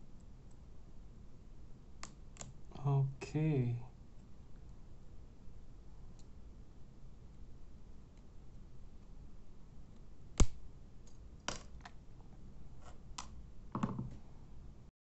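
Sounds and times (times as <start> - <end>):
light clicks of handled pieces: 6.1 - 6.4.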